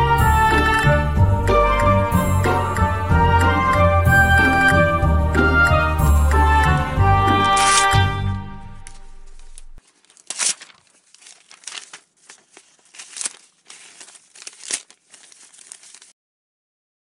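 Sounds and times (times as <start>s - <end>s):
background music: 0.0s - 9.8s
crinkly rustling: 7.4s - 8.0s, 8.8s - 16.2s.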